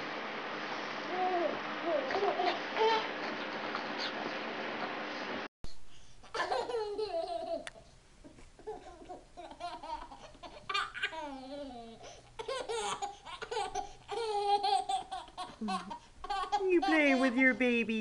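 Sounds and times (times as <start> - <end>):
baby giggling: 6.3 - 7.8, 8.6 - 17.2.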